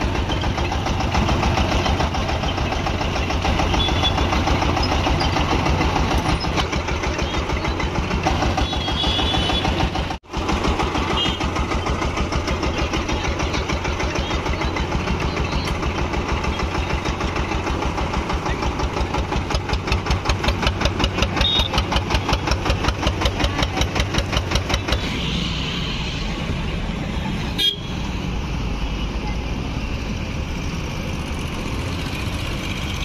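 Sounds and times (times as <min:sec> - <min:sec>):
engine thumping beat: 0:00.0 - 0:25.1
street traffic noise: 0:00.0 - 0:33.0.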